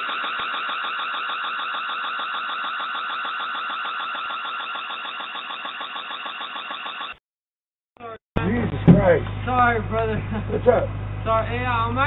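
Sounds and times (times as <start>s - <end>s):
pulsing electronic alarm: 0.0s - 7.2s.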